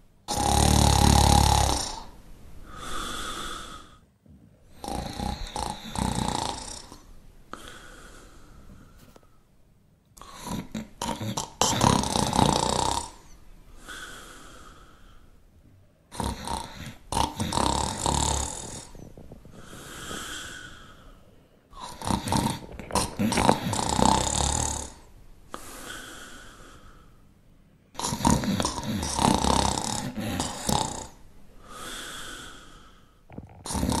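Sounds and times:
dog snoring: 0.3 - 4.0, 4.7 - 7.9, 10.2 - 14.8, 16.1 - 21.0, 21.7 - 26.4, 27.9 - 34.0.

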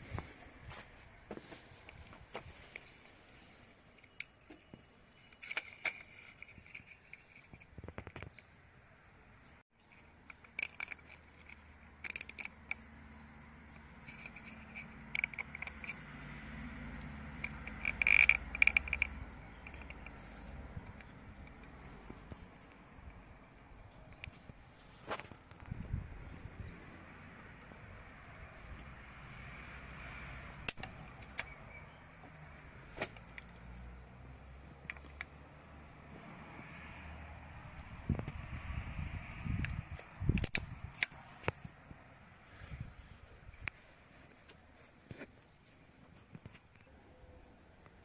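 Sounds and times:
cable tie ratchet clicks: 10.2 - 12.9, 17.0 - 22.8.

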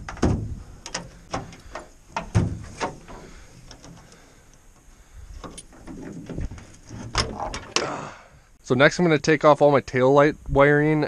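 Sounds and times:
metal cable and latch clinking: 5.4 - 7.8.

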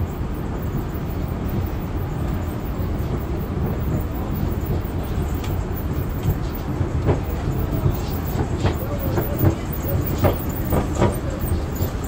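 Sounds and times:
faint clicks: 5.4 - 6.4.

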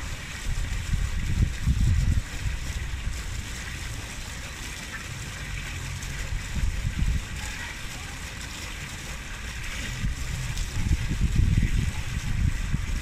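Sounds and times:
wind buffeting microphone: 0.0 - 3.4, 6.0 - 8.0, 9.3 - 13.0
garden fountain splashing: 0.0 - 13.0.

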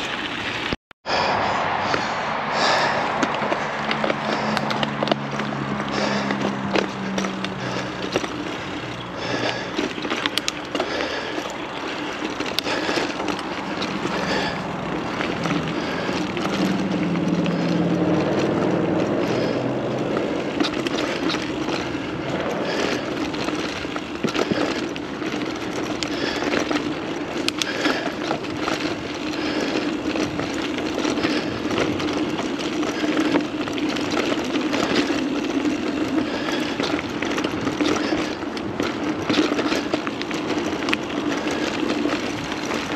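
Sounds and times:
bike clicks and rattles: 0.0 - 42.9
bike tyres rolling on dirt: 0.0 - 42.9.

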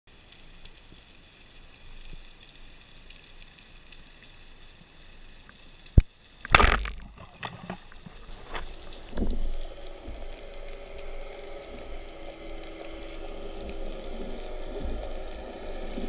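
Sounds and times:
faint underwater hiss with crackling: 0.1 - 16.0
speargun firing crack: 6.5 - 7.1
spear striking fish: 6.5 - 7.2.

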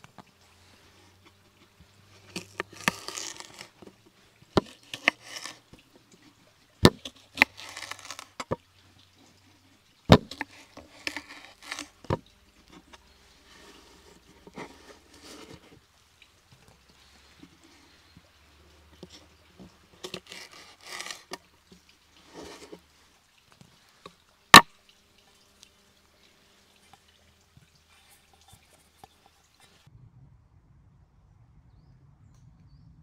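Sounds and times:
scratchy scraping: 2.1 - 3.9, 4.6 - 5.8, 6.9 - 8.6, 10.1 - 15.8, 20.0 - 21.4, 22.2 - 22.8.

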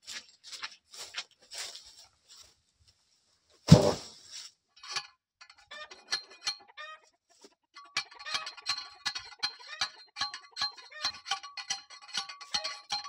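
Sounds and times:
chickens clucking: 5.7 - 8.6, 9.4 - 11.1.

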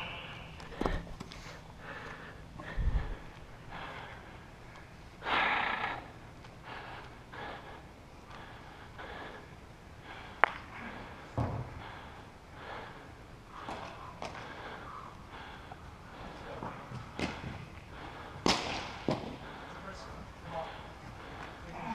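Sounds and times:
close breathing: 0.0 - 21.9
sharp crack: 18.4 - 19.3.

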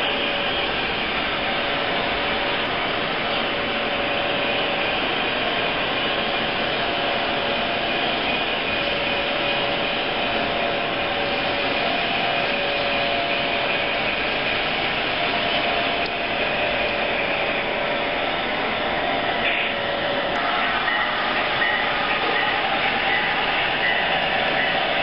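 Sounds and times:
model train wheels rumbling on rails: 0.0 - 25.0.

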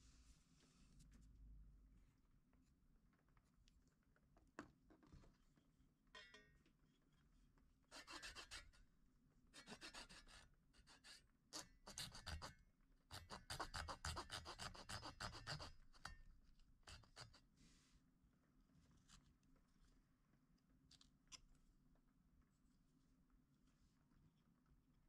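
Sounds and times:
hand saw rasping wood: 13.2 - 15.8.

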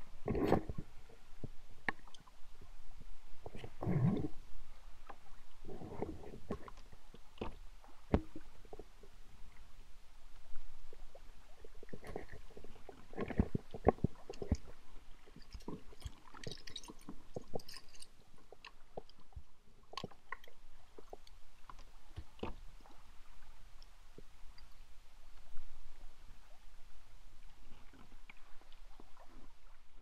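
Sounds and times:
paddle splashes and drips: 10.4 - 24.0.

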